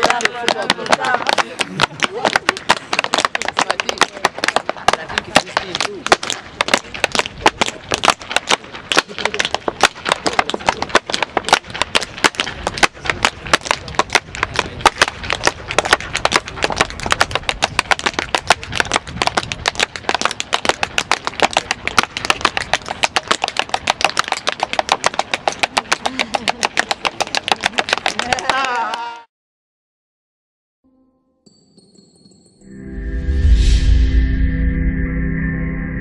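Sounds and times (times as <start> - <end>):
tap shoes on wooden board: 0.0 - 28.8.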